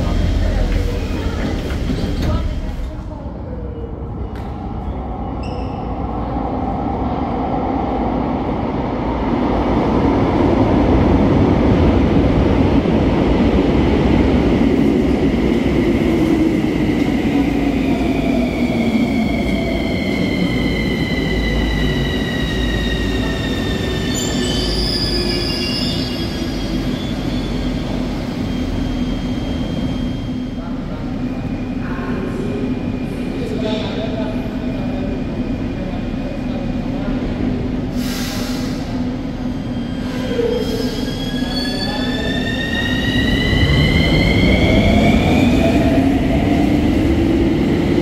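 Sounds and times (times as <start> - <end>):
train wheels rumbling on rail: 0.0 - 3.5.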